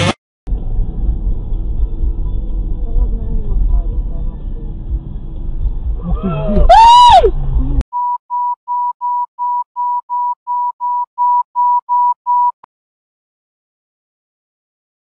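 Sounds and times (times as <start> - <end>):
rising and falling wail: 6.0 - 7.8
short electronic beeps: 7.9 - 12.6.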